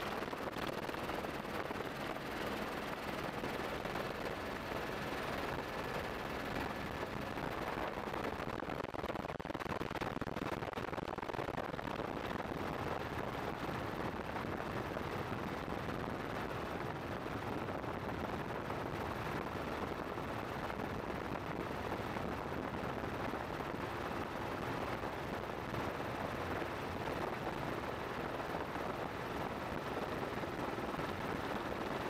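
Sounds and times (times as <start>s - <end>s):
helicopter engine: 0.0s - 8.2s
helicopter rotor blades chopping: 0.0s - 8.5s
wind noise: 0.0s - 32.0s.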